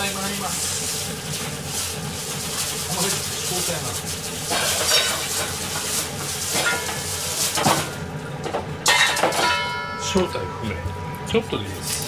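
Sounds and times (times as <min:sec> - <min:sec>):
metal pots and utensils clattering: 0:04.4 - 0:12.0
metallic clank with ring: 0:08.9 - 0:11.3.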